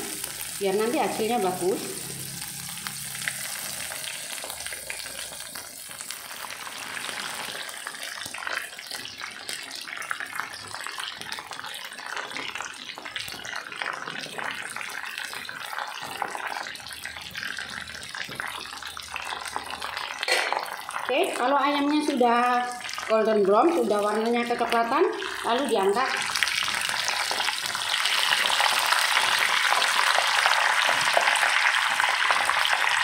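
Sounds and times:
chicken deep-frying in oil: 0.0 - 33.0.

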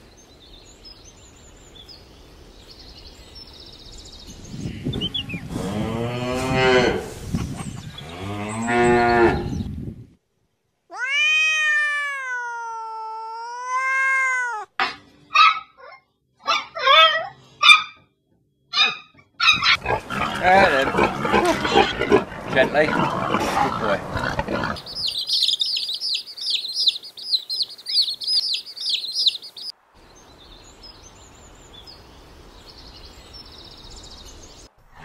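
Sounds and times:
cat meowing: 10.9 - 14.8.

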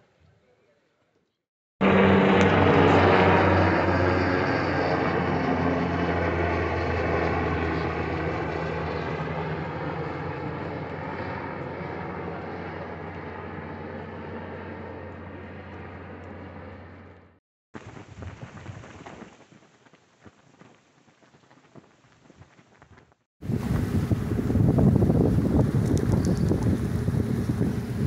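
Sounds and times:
engine humming: 1.8 - 18.1.

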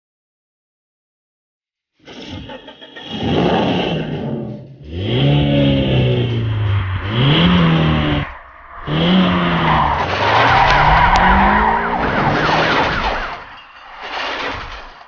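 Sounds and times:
car engine revving: 2.4 - 13.6
tyres screeching: 5.0 - 15.0
police siren wavering: 6.0 - 13.5.

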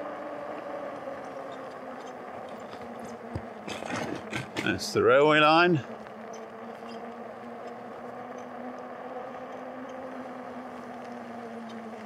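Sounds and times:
electric motor whining: 0.0 - 12.0
tyres rolling: 2.0 - 8.3.

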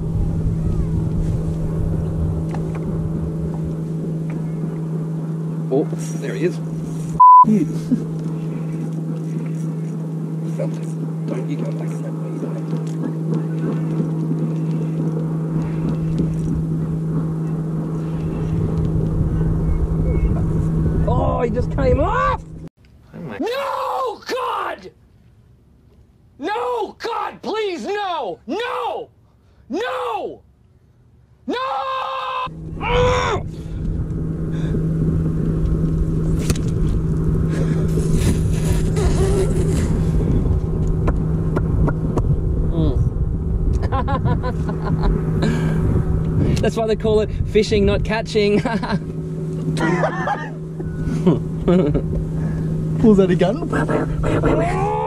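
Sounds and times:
wind buffeting microphone: 0.0 - 5.5, 11.0 - 22.7, 32.5 - 49.8
electric trolling motor hum: 0.0 - 22.7, 32.5 - 55.0.

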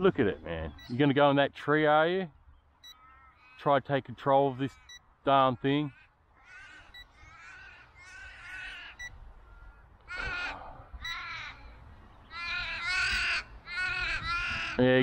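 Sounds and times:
ravens cawing: 2.9 - 3.7, 5.6 - 15.0.

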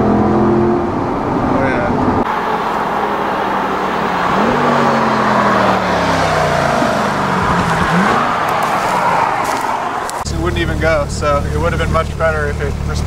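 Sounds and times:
road and tyre noise: 0.0 - 13.0
car engine driving past: 1.6 - 11.0.

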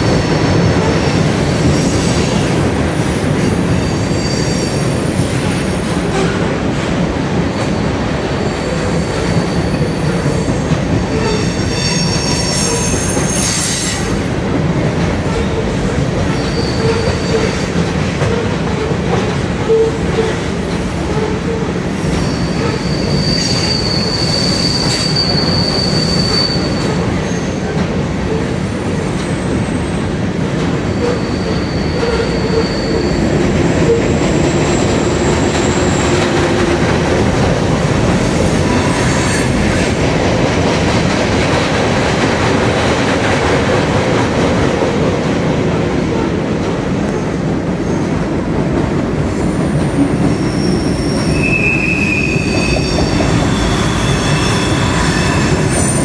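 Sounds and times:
train wheels rumbling on bridge: 0.0 - 56.0
high-pitched wheel squeals: 3.8 - 5.1, 11.1 - 14.2, 16.3 - 17.6, 21.3 - 27.6, 30.9 - 33.2, 49.6 - 56.0.

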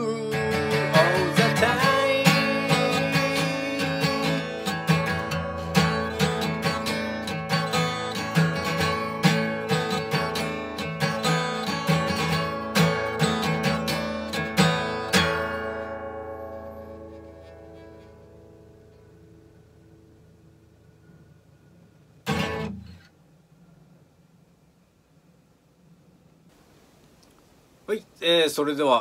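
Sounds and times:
acoustic guitar strumming: 0.0 - 21.6, 22.2 - 23.2.

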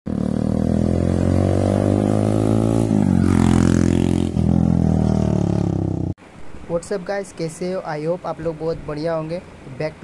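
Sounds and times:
motorcycle engine running: 0.1 - 6.1.

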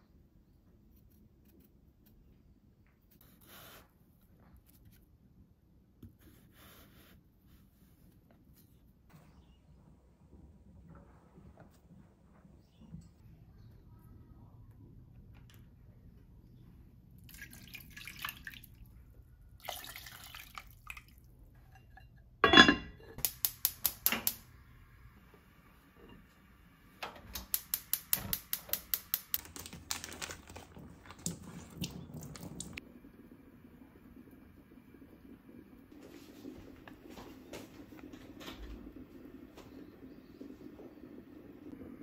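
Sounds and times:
water poured into a pot: 17.2 - 19.0, 19.6 - 21.3, 30.1 - 32.8
gas stove igniter ticking: 23.2 - 24.5, 27.0 - 29.4.

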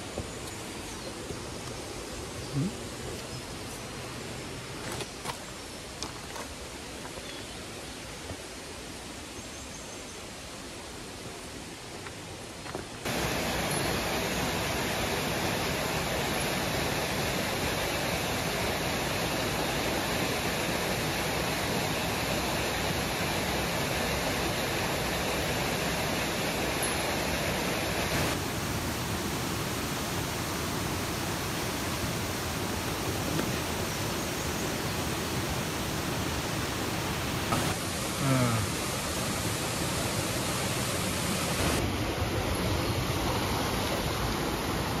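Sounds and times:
river water rushing over rocks: 11.9 - 45.0.

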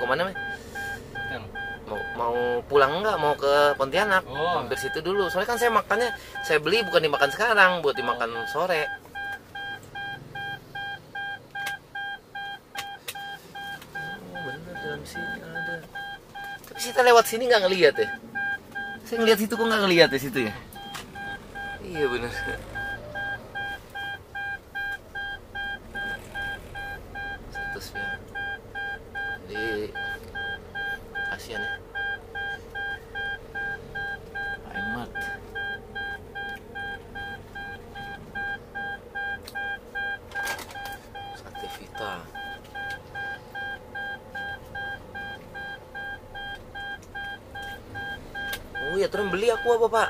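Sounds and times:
car warning beeps: 0.0 - 50.0.

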